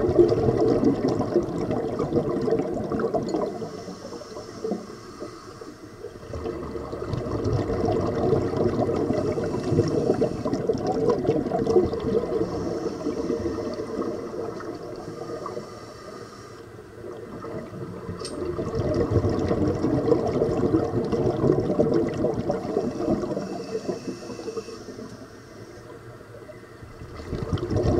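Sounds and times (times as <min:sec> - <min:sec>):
air bubbling underwater: 0:00.0 - 0:03.7, 0:06.2 - 0:15.0, 0:17.1 - 0:23.5, 0:26.9 - 0:27.9.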